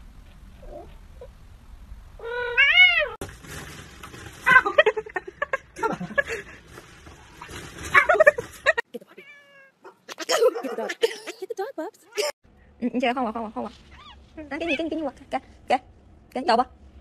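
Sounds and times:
cat meowing: 0:02.2 - 0:03.2, 0:09.1 - 0:10.2.

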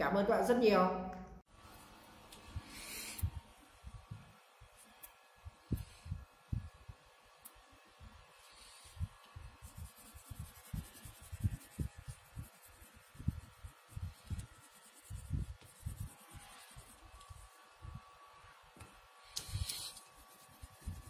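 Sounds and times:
light rubbing and scratching: 0:08.6 - 0:17.6.

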